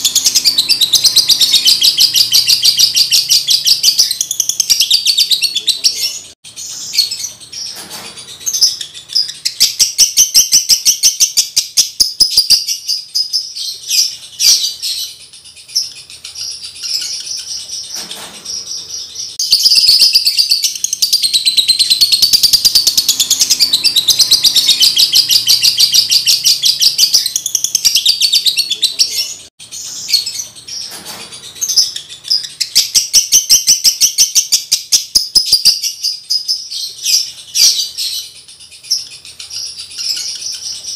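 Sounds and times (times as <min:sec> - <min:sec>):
bird chattering trill: 0:00.0 - 0:40.9.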